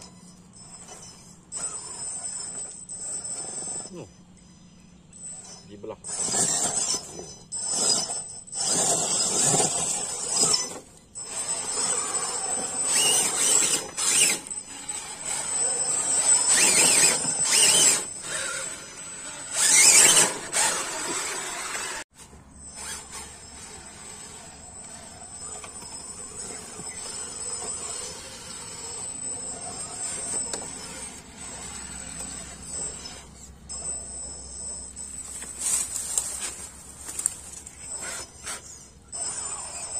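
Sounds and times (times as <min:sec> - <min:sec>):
rc truck motors whining: 0:00.0 - 0:39.9.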